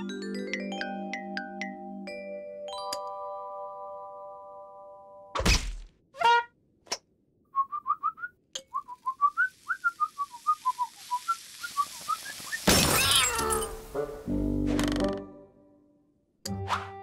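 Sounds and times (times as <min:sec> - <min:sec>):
glass shattering: 0:12.5 - 0:13.9.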